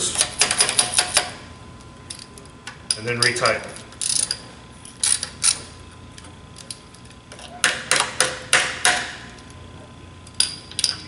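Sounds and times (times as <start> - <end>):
ratchet wrench clicking: 4.0 - 5.6.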